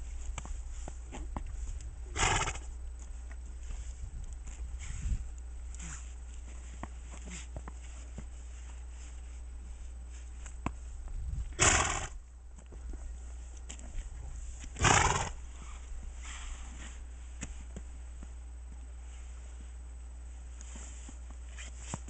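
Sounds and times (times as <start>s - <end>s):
horse snorting: 2.1s - 2.7s, 11.6s - 12.2s, 14.7s - 15.5s.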